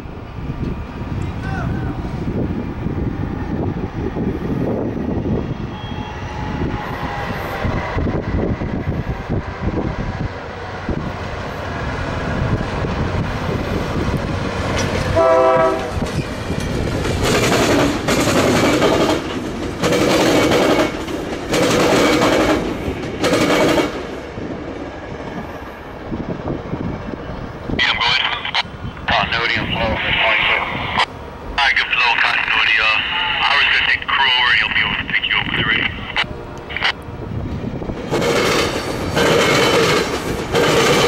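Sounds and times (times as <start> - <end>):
train rumbling past: 0.0 - 41.0
train horn blasts: 5.6 - 7.6, 15.2 - 16.0.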